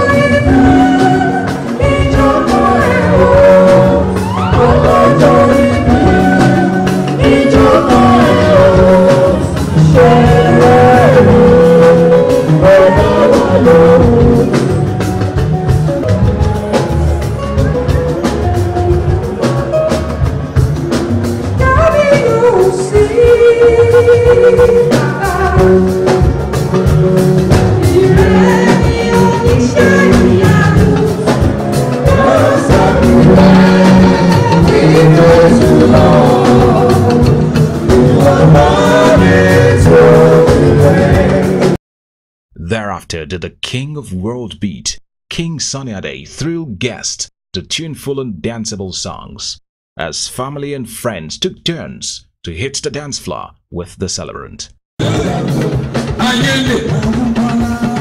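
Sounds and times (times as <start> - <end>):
person singing gospel: 0.0 - 14.9, 27.8 - 41.8, 55.0 - 58.0
live band with steady beat: 0.0 - 41.8, 55.0 - 58.0.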